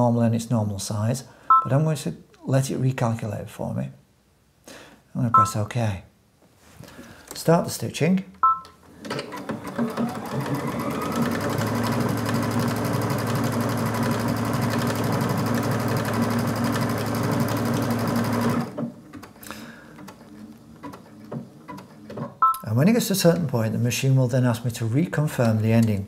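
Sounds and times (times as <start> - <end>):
sewing machine stitching: 9.0 - 22.4.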